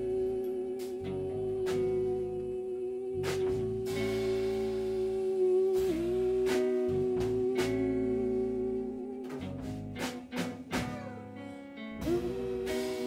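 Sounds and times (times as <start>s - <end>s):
guitar: 0.0s - 13.0s
held melody note bending: 0.0s - 13.0s
drum hits: 9.2s - 11.3s.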